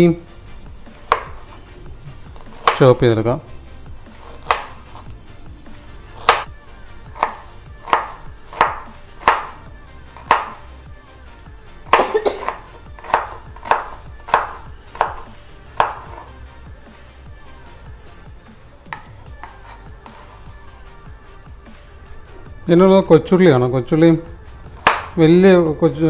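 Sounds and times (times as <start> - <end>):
knife chopping on wooden board: 1.0 - 1.6, 2.3 - 2.9, 4.1 - 5.1, 6.1 - 6.5, 7.1 - 9.6, 10.2 - 10.7, 11.9 - 16.3, 18.9 - 20.4, 24.8 - 25.2.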